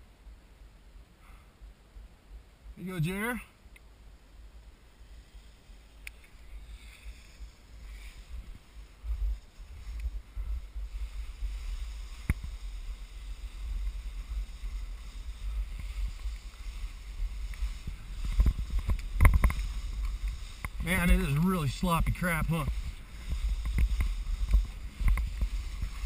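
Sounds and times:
skis sliding through wet snow: 0:04.3 - 0:26.0
wind buffeting microphone: 0:05.7 - 0:26.0.

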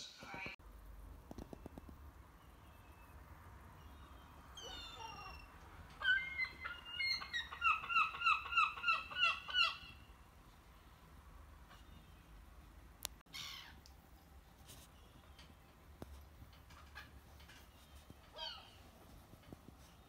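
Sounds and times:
seagull squawking: 0:04.6 - 0:10.0.

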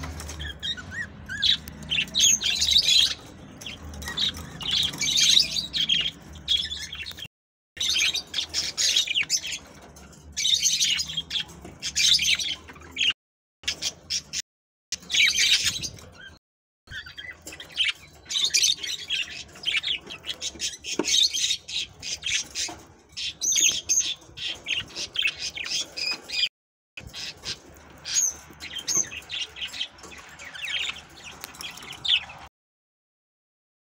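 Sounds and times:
budgerigars chirping: 0:00.0 - 0:09.7, 0:15.0 - 0:32.4.

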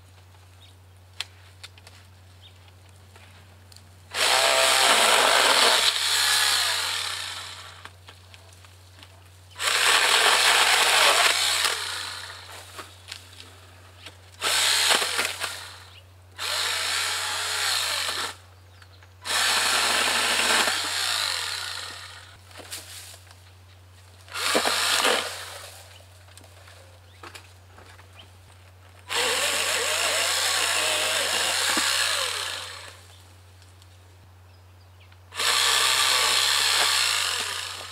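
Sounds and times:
electric pole saw running: 0:04.1 - 0:07.9, 0:09.6 - 0:12.6, 0:14.4 - 0:18.4, 0:19.2 - 0:22.4, 0:24.3 - 0:25.8, 0:29.1 - 0:33.1, 0:35.3 - 0:37.9.

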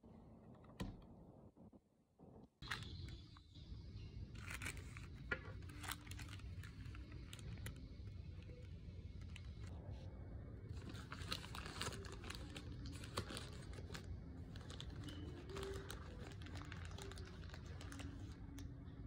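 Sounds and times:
low room hum: 0:00.0 - 0:19.0
paper wrapper crinkling: 0:04.4 - 0:09.8, 0:10.7 - 0:18.6.

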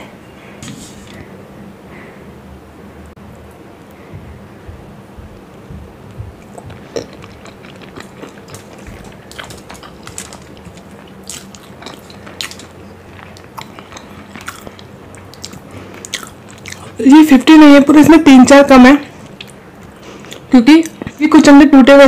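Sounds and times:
steady low hum: 0:00.0 - 0:22.0
chewing mouth clicks and smacks: 0:06.4 - 0:17.0.

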